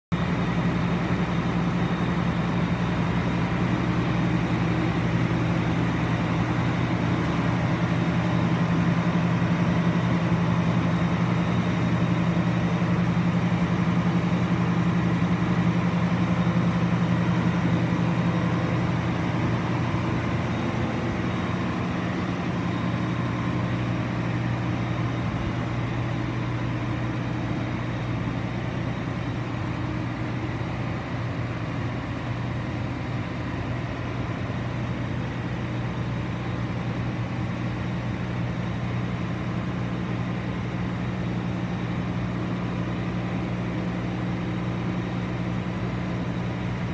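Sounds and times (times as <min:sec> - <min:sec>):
combine harvester diesel engine running: 0:00.1 - 0:46.9.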